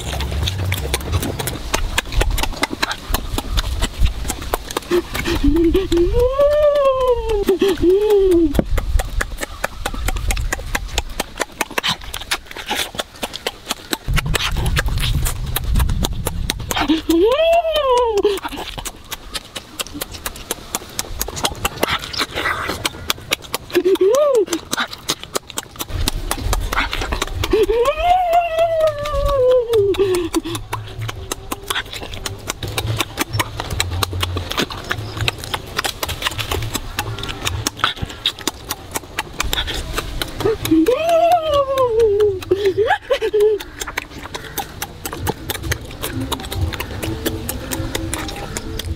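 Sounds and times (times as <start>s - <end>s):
low rumble: 0.0s - 6.6s, 14.0s - 18.8s
roast chicken crackling being torn: 0.0s - 48.9s.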